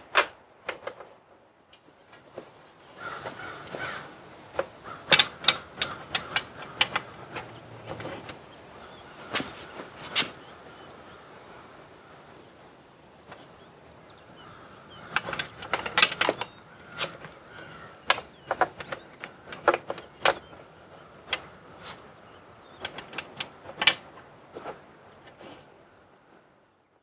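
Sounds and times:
clicks of bag fittings handled: 0:04.5 - 0:08.4, 0:15.1 - 0:20.6, 0:22.8 - 0:25.4.

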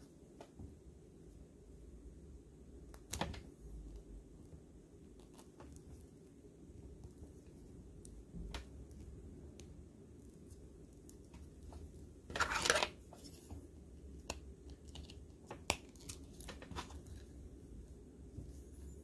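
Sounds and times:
plastic piece scraping tabletop: 0:12.3 - 0:13.5.

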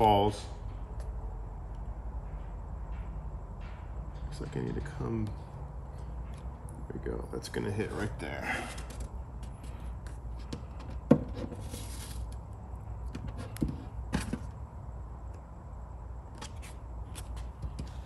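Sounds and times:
low steady hum: 0:00.0 - 0:18.0
vinyl sheet rustling: 0:11.5 - 0:12.4.

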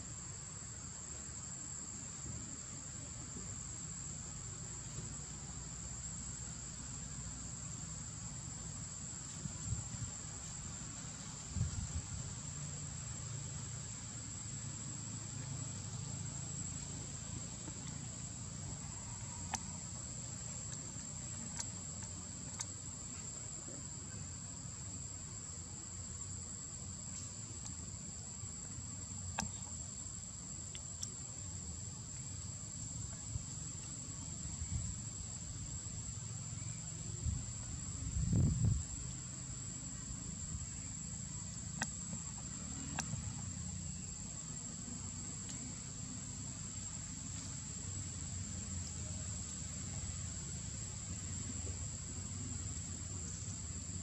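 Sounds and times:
faint clicks: 0:18.9 - 0:19.8, 0:20.6 - 0:22.8, 0:29.3 - 0:29.7, 0:30.7 - 0:31.2, 0:41.8 - 0:43.2.

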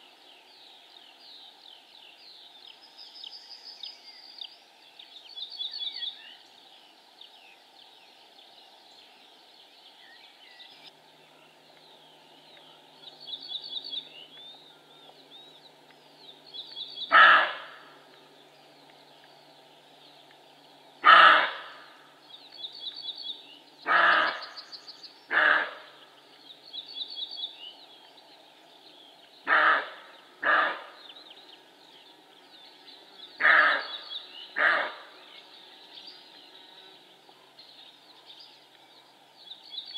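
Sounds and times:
deer barking: 0:17.1 - 0:17.7, 0:21.0 - 0:21.7, 0:25.3 - 0:25.8, 0:29.5 - 0:30.9, 0:34.6 - 0:35.0.

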